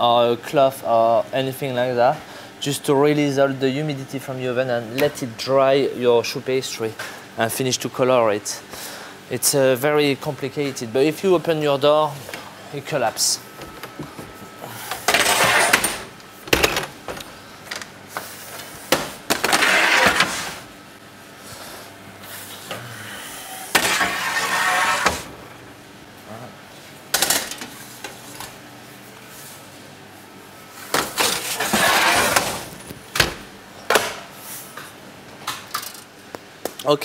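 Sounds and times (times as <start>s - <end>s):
metal trays scraping: 15.0s - 16.1s, 19.4s - 20.7s, 23.7s - 25.3s, 31.1s - 32.8s.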